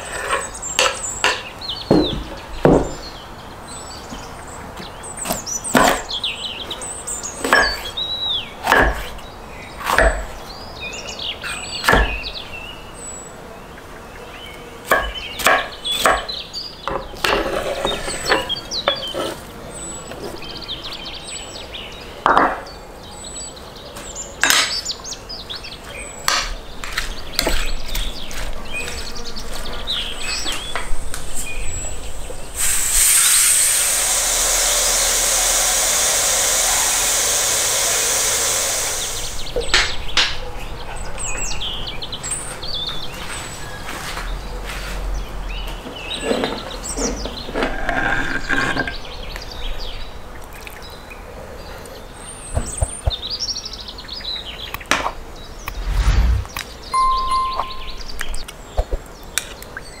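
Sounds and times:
knife chopping on wooden board: 0:08.6 - 0:09.1
pressure cooker steam hiss: 0:32.6 - 0:39.5.

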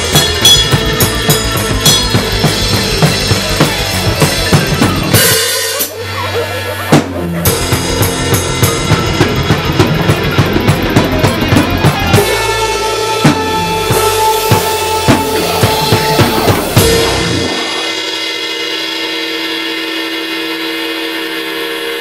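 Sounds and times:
backing track bass and synth: 0:00.0 - 0:18.6
acoustic drum kit playing fast: 0:00.0 - 0:22.0
crash cymbal ringing: 0:12.3 - 0:22.0.

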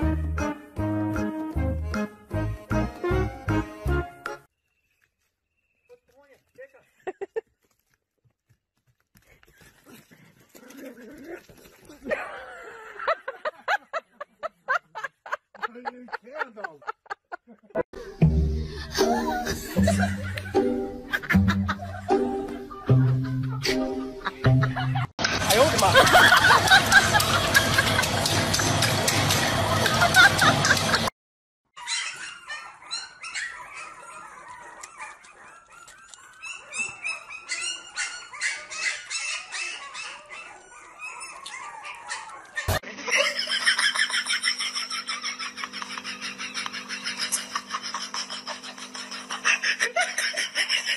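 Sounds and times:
person laughing hard: 0:07.0 - 0:07.5, 0:11.9 - 0:28.3, 0:29.8 - 0:31.1, 0:42.8 - 0:50.9
puppy squeaky whimpers: 0:31.8 - 0:42.7.

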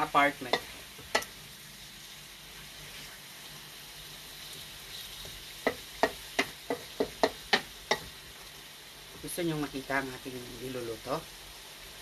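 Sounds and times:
meat sizzling in a pan: 0:00.0 - 0:12.0
utensil knocking against pan: 0:05.6 - 0:08.1.

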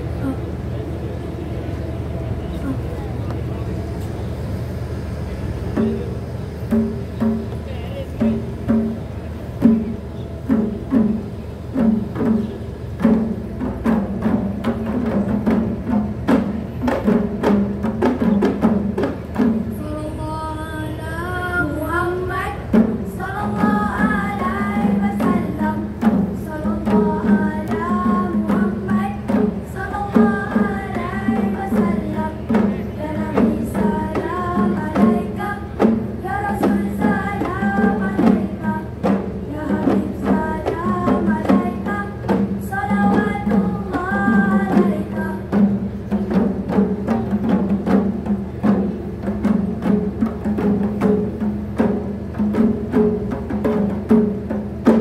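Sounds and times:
frame drums ensemble: 0:00.0 - 0:20.2, 0:21.5 - 0:55.0
people singing: 0:20.8 - 0:45.7.

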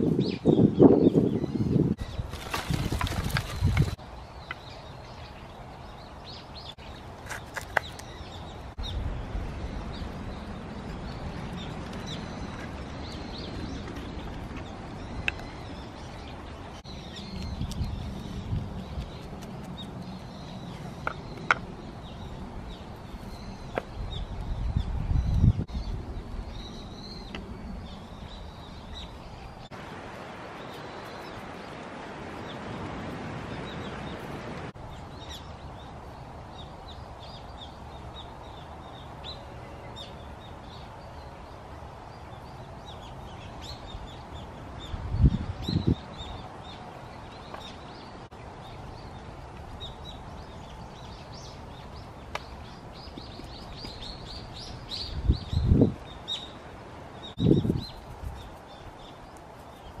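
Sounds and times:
small birds chirping: 0:00.0 - 0:29.8, 0:33.4 - 1:00.0.

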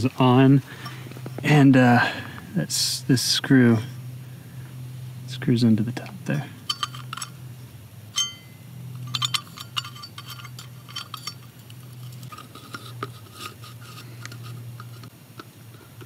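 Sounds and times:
metal parts clinking and scraping: 0:06.6 - 0:07.4, 0:08.1 - 0:15.1.

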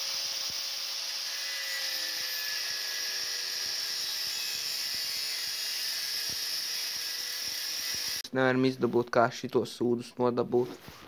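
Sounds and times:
angle grinder cutting metal: 0:00.0 - 0:08.3.

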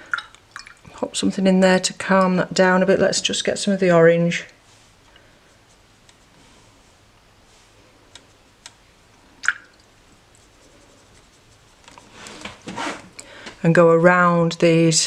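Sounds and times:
paintbrush dabbing in palette: 0:04.5 - 0:09.1, 0:09.8 - 0:13.1.

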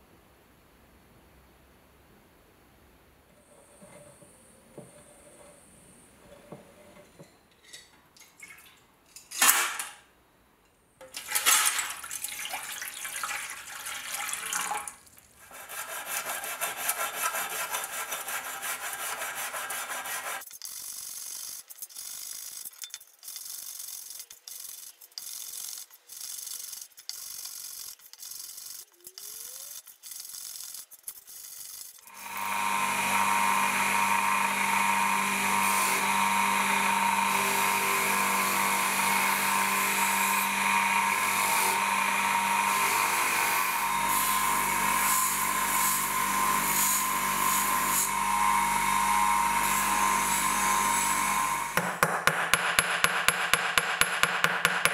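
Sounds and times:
tap water splashing into container: 0:11.0 - 0:15.3
scrubbing in a metal tray: 0:11.2 - 0:20.5
bench motor spinning wire wheel: 0:15.6 - 0:51.8.

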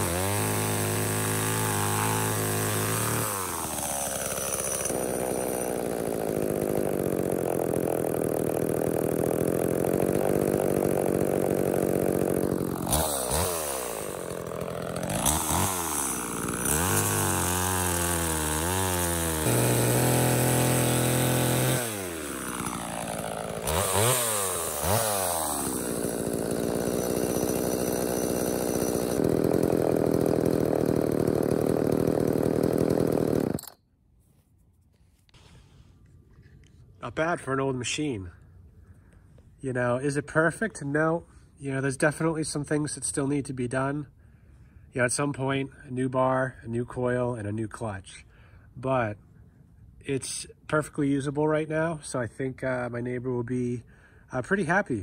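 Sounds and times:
chainsaw revving and cutting log: 0:00.0 - 0:33.8.

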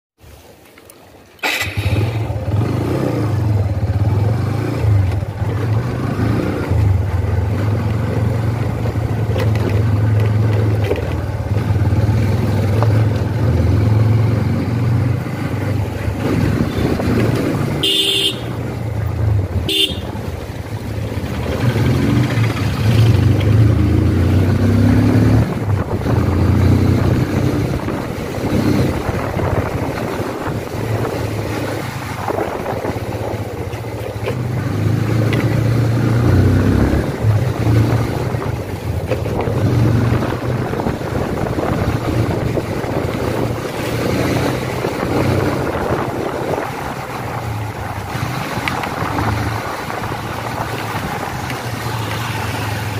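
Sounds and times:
motorcycle engine running: 0:01.4 - 0:52.9
horn toots: 0:17.6 - 0:18.8, 0:19.6 - 0:20.2.

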